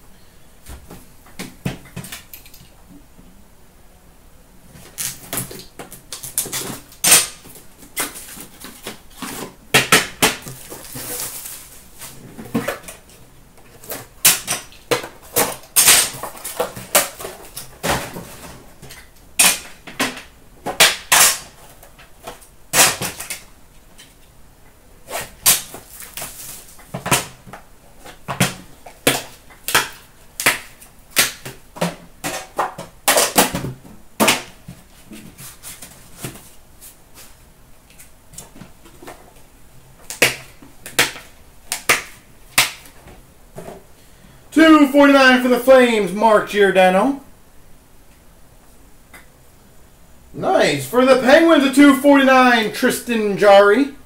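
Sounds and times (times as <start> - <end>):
cardboard rustling: 4.7 - 14.2, 25.0 - 29.4, 34.5 - 37.4.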